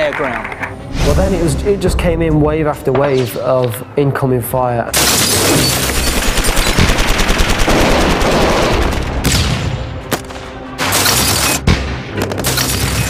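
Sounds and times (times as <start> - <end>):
rapid automatic gunfire: 5.0 - 9.2.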